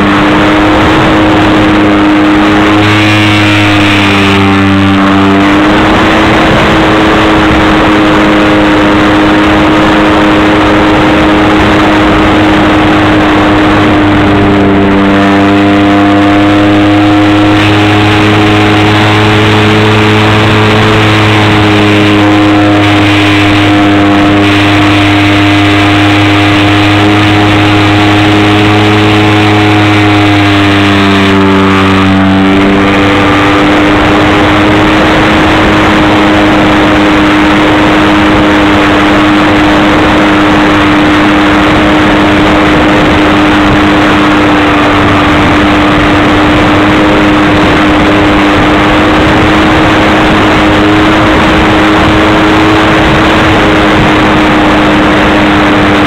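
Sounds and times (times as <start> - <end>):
model plane motor running: 0.0 - 56.0.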